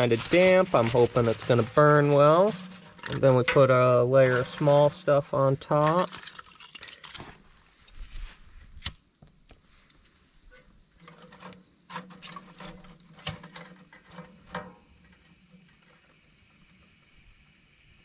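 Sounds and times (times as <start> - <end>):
kindling clicking and knocking in stove: 11.0 - 15.9.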